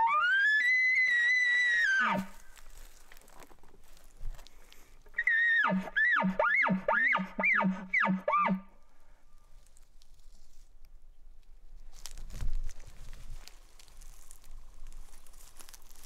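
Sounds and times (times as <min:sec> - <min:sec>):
elk bugling: 0:00.0 - 0:02.6, 0:05.2 - 0:08.7.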